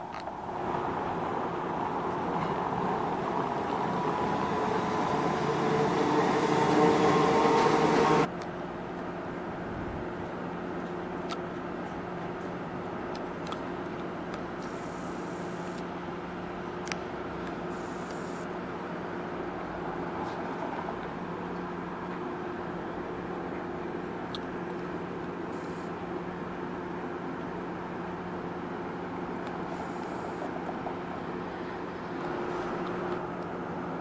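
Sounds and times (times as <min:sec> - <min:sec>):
distant streetcar approaching: 0:00.0 - 0:34.0
electric streetcar running past: 0:00.4 - 0:08.3, 0:14.7 - 0:29.9, 0:30.5 - 0:34.0
steady hum: 0:14.5 - 0:20.0.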